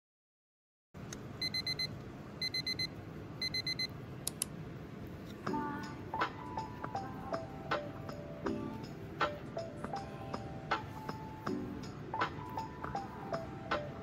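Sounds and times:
electronic alarm beeping: 1.4s - 3.9s
light background music: 5.4s - 14.0s.

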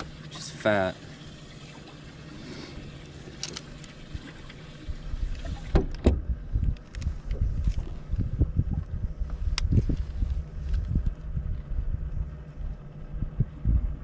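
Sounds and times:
boat engine hum: 0.0s - 14.0s
wind rumble on microphone: 4.0s - 14.0s.

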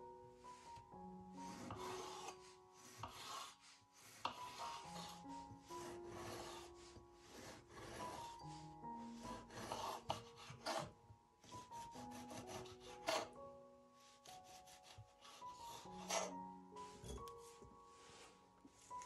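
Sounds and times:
soft background music: 0.0s - 19.0s
knife cutting on wooden board: 1.4s - 5.2s, 5.8s - 6.7s, 7.3s - 8.4s, 9.3s - 13.4s, 14.2s - 17.4s.

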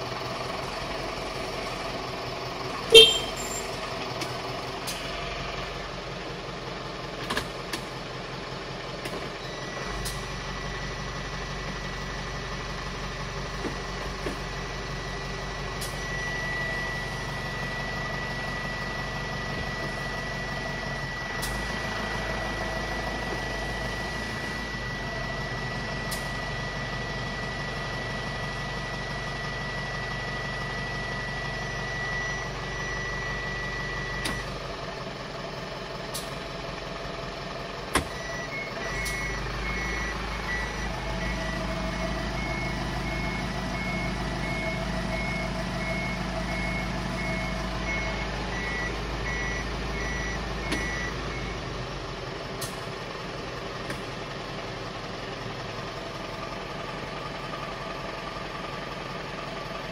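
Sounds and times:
diesel engine idling: 0.0s - 59.9s
high-pitched warning tone: 2.9s - 3.7s
reversing warning beeps: 2.9s - 3.8s, 9.4s - 12.2s, 13.7s - 34.6s, 38.0s - 51.7s.

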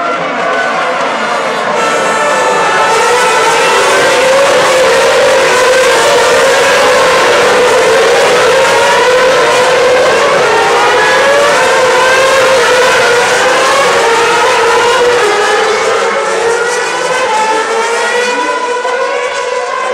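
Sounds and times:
racing car engines screaming: 0.0s - 19.9s.

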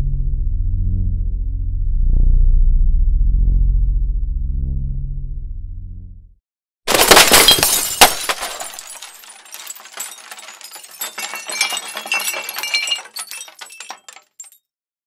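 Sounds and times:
falling glass shards tinkling: 6.9s - 14.6s
glass shattering crash: 6.9s - 14.6s.

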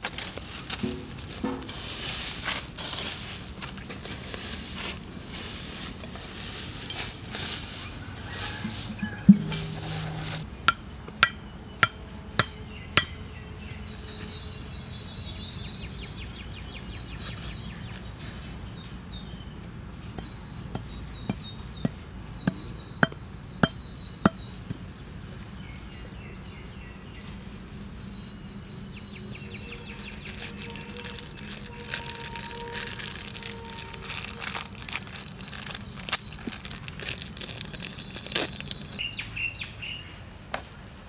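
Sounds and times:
bird chirping: 7.8s - 40.4s
insects trilling: 29.1s - 39.0s.

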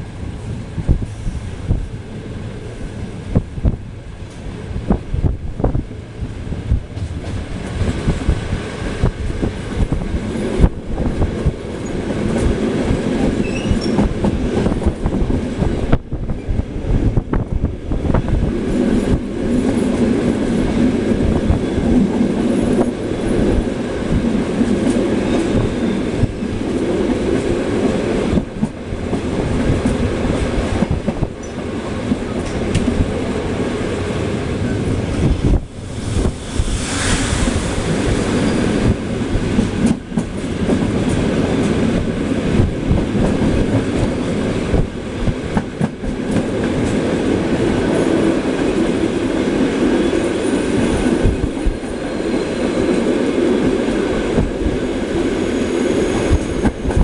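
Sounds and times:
passenger train rumbling past: 0.0s - 57.0s
faint wheel squeal: 13.4s - 14.0s.

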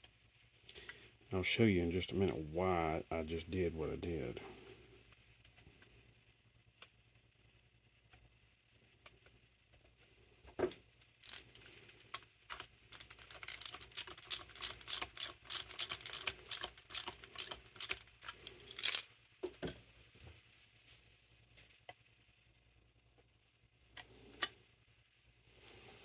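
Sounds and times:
metallic clicks of small parts: 11.0s - 19.8s.

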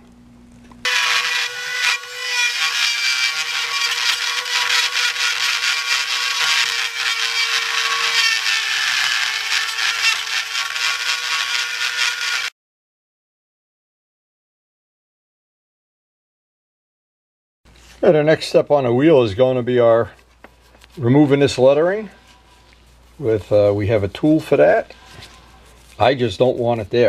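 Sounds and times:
rotary tool grinding metal: 0.8s - 12.5s.

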